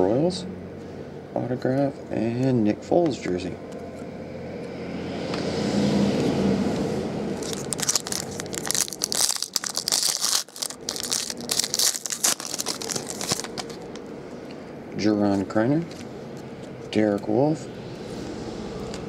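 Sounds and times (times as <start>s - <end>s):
foil wrapper tearing and crinkling: 7.4s - 14.0s.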